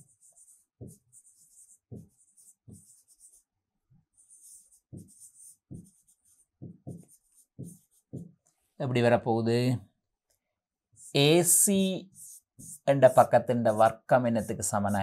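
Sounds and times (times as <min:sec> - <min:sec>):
stylus scratching on tablet: 0:00.0 - 0:08.8, 0:10.9 - 0:15.0.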